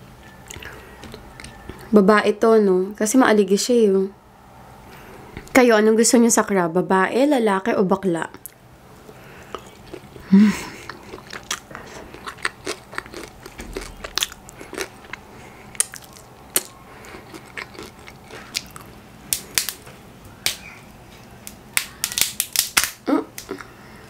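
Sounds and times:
chewing and wet mouth smacks: 0.4s - 1.9s, 9.4s - 19.0s.

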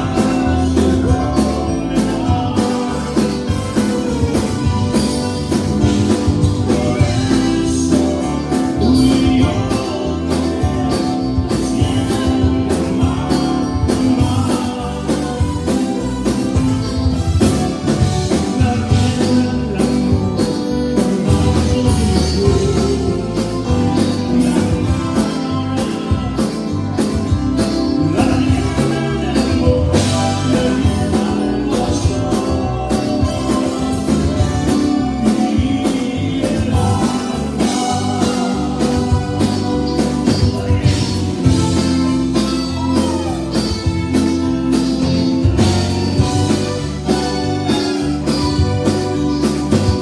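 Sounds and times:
accordion: 0.0s - 50.0s
bass: 0.0s - 50.0s
electric guitars: 0.0s - 50.0s
person singing: 0.0s - 50.0s
drum beat: 28.2s - 50.0s.

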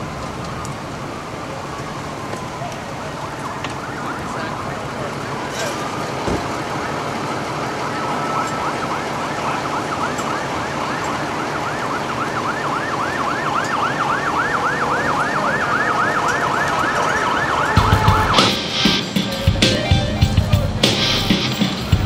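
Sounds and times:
emergency siren yelping: 0.0s - 21.7s
music with drums: 17.8s - 22.0s.

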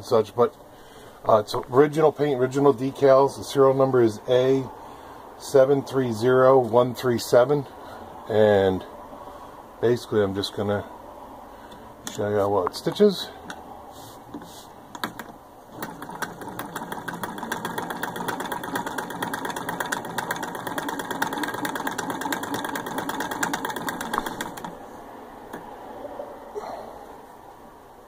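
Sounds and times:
hand-cranked sewing machine ticking: 15.0s - 24.8s.

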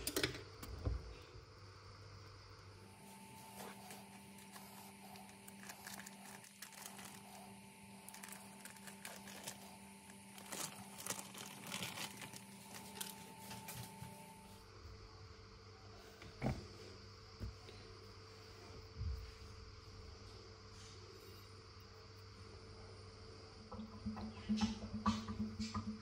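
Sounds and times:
faint steady hum: 0.0s - 26.0s
baking paper crinkling and tearing: 2.9s - 14.3s.

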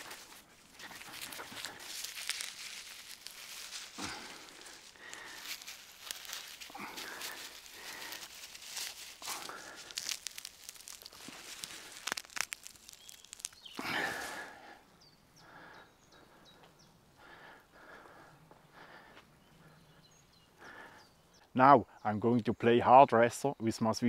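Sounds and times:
grass rustling in hands: 0.0s - 14.7s
faint outdoor background: 0.0s - 24.0s.

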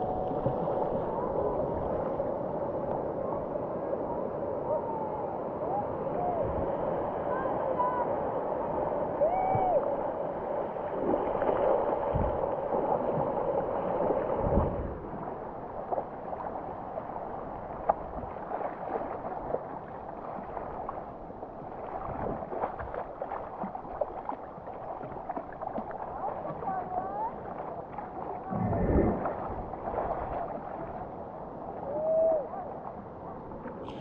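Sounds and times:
water sloshing and splashing: 0.0s - 2.2s, 10.8s - 31.3s.

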